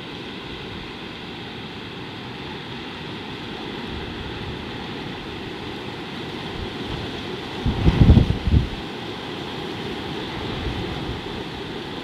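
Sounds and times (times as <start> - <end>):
wind gusting on microphone: 3.7 - 9.0, 9.8 - 12.0.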